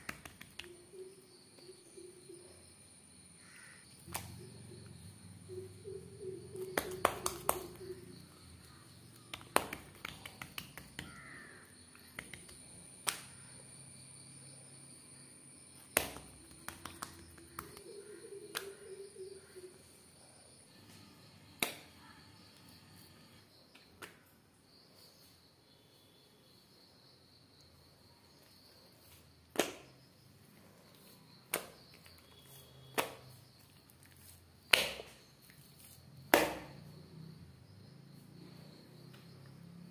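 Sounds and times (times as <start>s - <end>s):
dough slapping on countertop: 0.0s - 0.7s, 6.7s - 7.8s, 9.2s - 13.3s, 15.9s - 17.9s, 31.5s - 31.9s, 32.9s - 33.4s, 34.2s - 35.2s, 36.3s - 36.8s
soft sticky dough pats: 6.6s - 8.0s, 8.6s - 13.3s, 15.8s - 18.9s, 30.9s - 36.8s.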